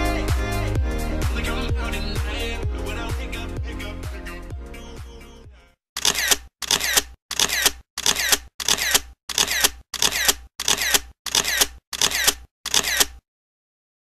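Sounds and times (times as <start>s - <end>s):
camera shutter and motor drive: 6.0s - 13.2s.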